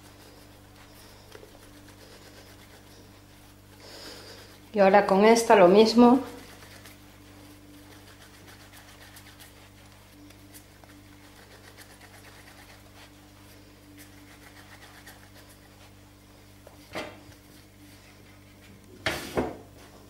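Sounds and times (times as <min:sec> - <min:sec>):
low background hum: 0:00.0 - 0:20.0.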